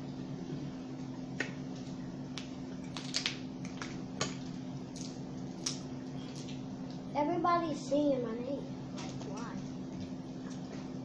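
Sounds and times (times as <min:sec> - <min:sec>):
steady low hum: 0:00.0 - 0:11.0
crab shells cracking: 0:02.4 - 0:07.0.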